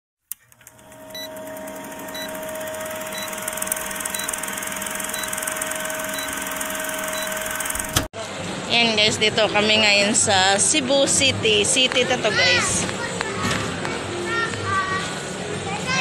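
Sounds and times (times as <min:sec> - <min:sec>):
film projector whir and rattle: 0:00.3 - 0:08.1
steady tone: 0:01.0 - 0:08.1.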